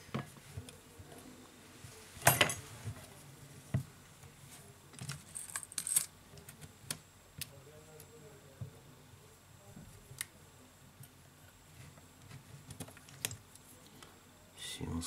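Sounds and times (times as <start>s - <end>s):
small parts clicking and clattering: 5.0s - 6.1s.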